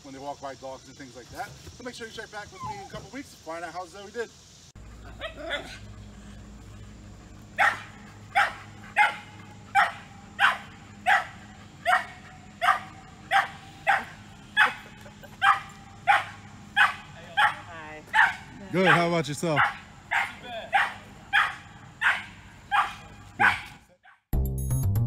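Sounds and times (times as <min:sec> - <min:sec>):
dog barking: 0:07.6 - 0:24.2.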